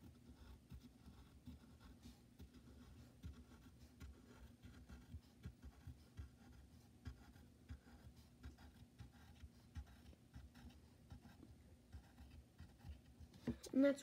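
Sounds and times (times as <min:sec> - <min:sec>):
pen scratching on paper: 0:00.0 - 0:13.6
faint low hum: 0:00.0 - 0:14.0
small taps and soft bumps: 0:11.2 - 0:13.9.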